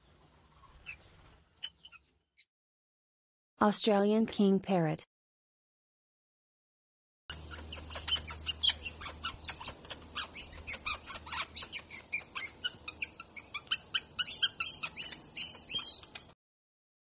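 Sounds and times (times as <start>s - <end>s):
parrot chirping and squeaking: 0.4s - 2.5s, 7.3s - 16.3s.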